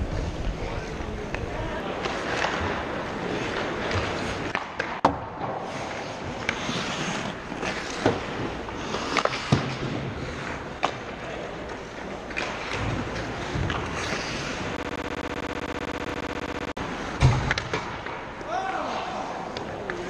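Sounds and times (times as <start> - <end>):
skates scraping on ice: 5.6 - 9.8.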